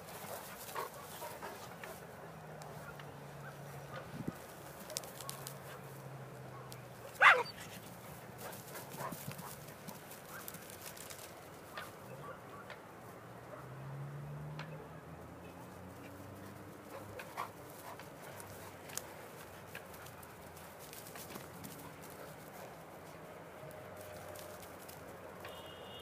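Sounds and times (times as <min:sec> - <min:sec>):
dog yelping: 0:07.2 - 0:07.7.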